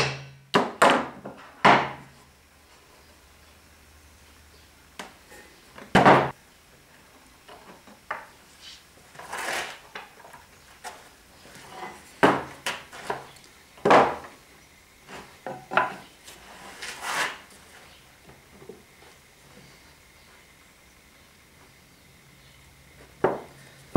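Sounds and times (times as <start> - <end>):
wooden boards knocking on bench: 0.0 - 2.1, 5.9 - 6.3, 12.2 - 14.3, 15.4 - 16.0, 23.2 - 23.5
board scraping over bench: 9.1 - 10.2, 15.1 - 17.8.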